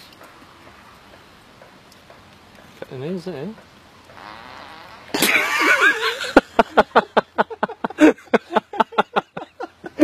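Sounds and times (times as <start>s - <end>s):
loud squealing laughter: 4.6s - 10.0s.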